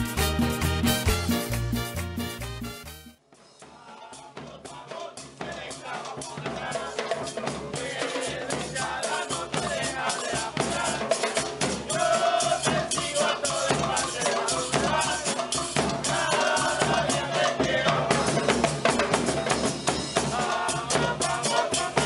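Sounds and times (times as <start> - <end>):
bass drums: 0.0 - 3.0.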